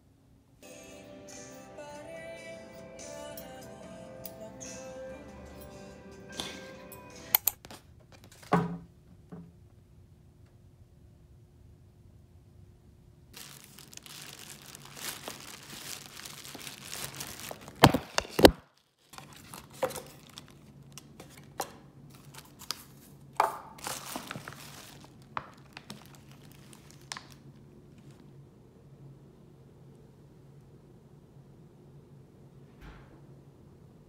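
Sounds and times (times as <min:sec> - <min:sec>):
plastic bag crinkling: 0:13.4 - 0:28.4.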